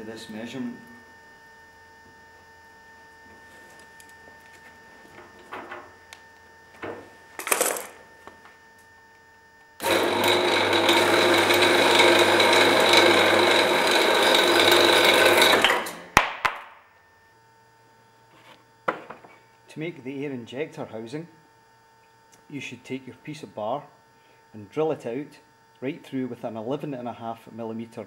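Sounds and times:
bandsaw cutting acrylic: 0:09.8 - 0:16.0.

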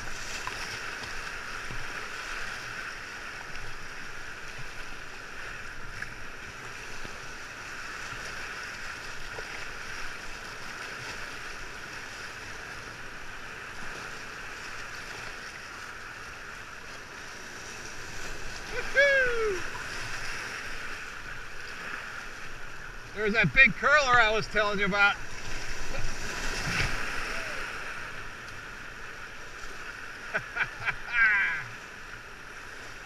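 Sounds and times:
river whitewater rushing: 0:17.9 - 0:33.0.

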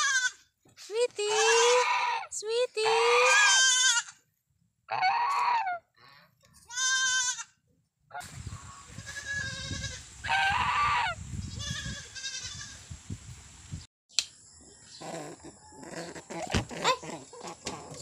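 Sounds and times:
goat kid bleating: 0:00.0 - 0:00.5, 0:01.1 - 0:04.3, 0:06.6 - 0:07.6, 0:08.9 - 0:11.0, 0:11.6 - 0:12.8.

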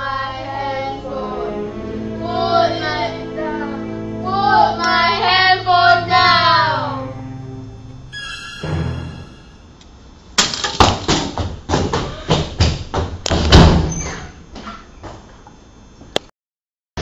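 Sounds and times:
faint high tinny melody: 0:00.1 - 0:10.2
running footsteps on hard floor: 0:10.8 - 0:13.6.

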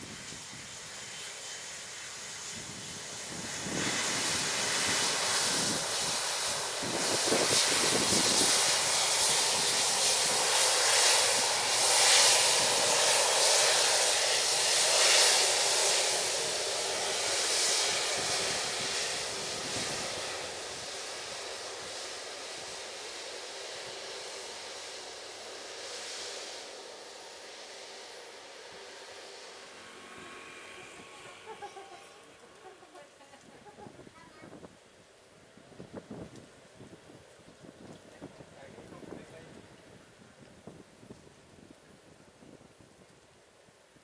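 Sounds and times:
jet engines roaring: 0:00.0 - 0:34.2.

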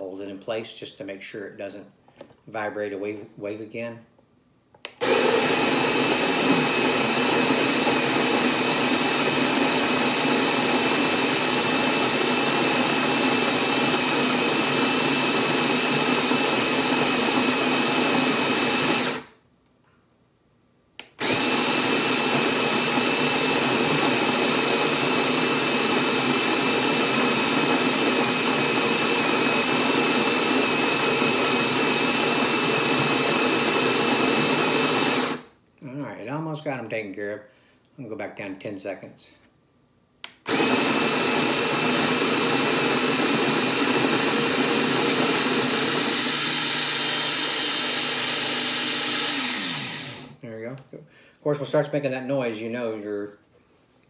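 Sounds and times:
coffee grinder whirring: 0:04.9 - 0:19.4, 0:21.0 - 0:35.5, 0:40.5 - 0:50.4.

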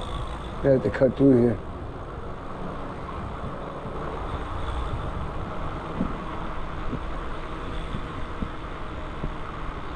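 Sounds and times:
wind rushing on microphone: 0:01.4 - 0:09.9.

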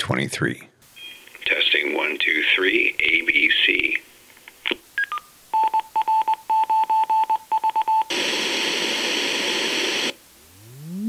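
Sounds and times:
pink noise hiss: 0:00.8 - 0:05.6, 0:08.1 - 0:11.0
morse code beeping: 0:05.0 - 0:08.1
rising test tone sweep: 0:10.4 - 0:11.0.

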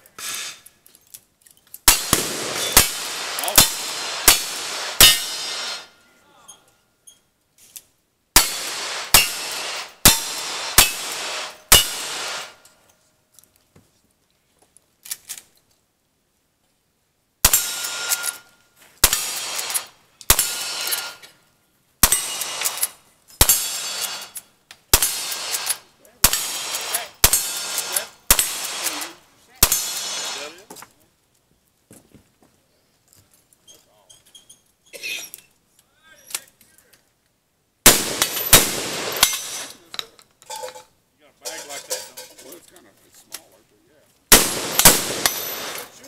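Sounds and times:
lever-action rifle shots: 0:01.9 - 0:05.8, 0:08.4 - 0:12.6, 0:19.0 - 0:21.1, 0:24.9 - 0:30.5, 0:37.9 - 0:39.8, 0:44.3 - 0:46.0
steel target clanging: 0:01.9 - 0:06.7, 0:08.4 - 0:12.6, 0:17.5 - 0:21.3, 0:22.0 - 0:24.4, 0:25.0 - 0:30.5, 0:37.9 - 0:42.6, 0:44.3 - 0:46.0.

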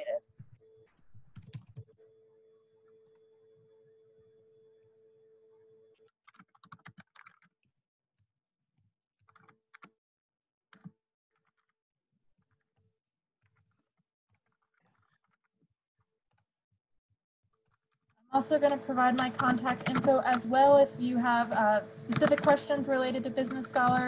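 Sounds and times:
faint keyboard typing: 0:00.0 - 0:02.2, 0:06.0 - 0:07.5, 0:17.6 - 0:24.0
steady hum: 0:18.4 - 0:24.0.

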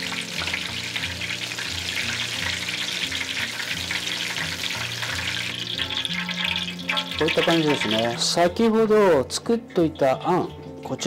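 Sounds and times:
tofu deep-frying in oil: 0:00.0 - 0:08.6.

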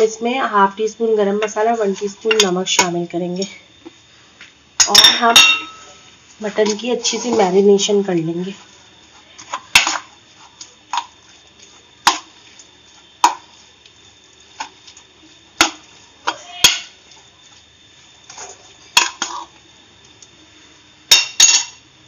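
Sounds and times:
metal spoon clinking on ceramic bowl: 0:04.8 - 0:05.9.

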